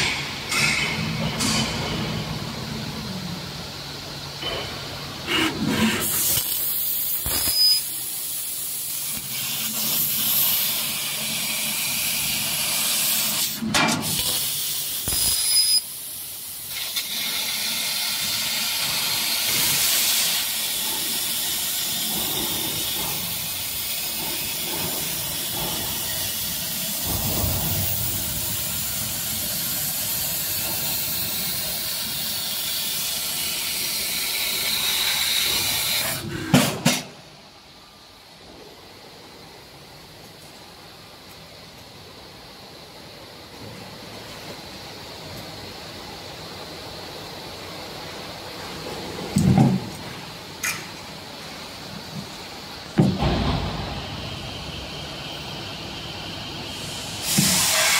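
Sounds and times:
laser cutting head hissing: 5.3s - 10.7s, 14.2s - 15.8s, 56.8s - 57.9s.

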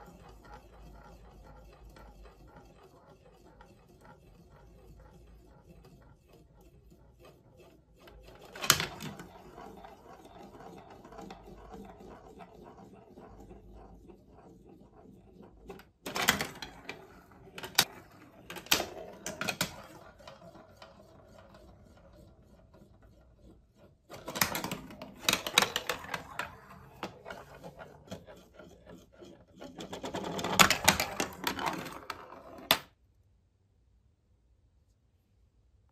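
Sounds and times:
marbles clattering through marble run: 8.0s - 21.8s, 24.1s - 32.9s.

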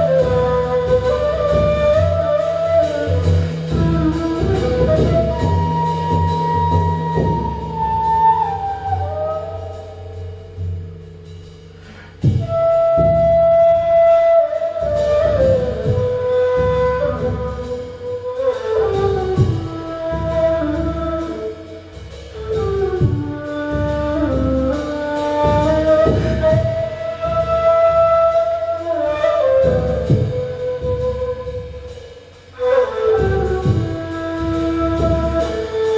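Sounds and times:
reed flute slow melody: 0.0s - 10.8s, 12.2s - 35.9s
drum low beat: 0.0s - 13.6s, 14.4s - 27.7s, 29.8s - 35.9s.

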